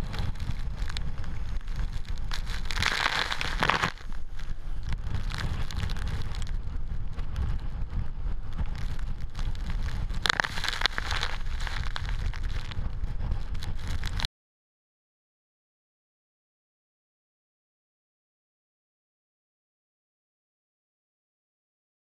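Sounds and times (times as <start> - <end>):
wind buffeting the microphone: 0.0 - 14.3.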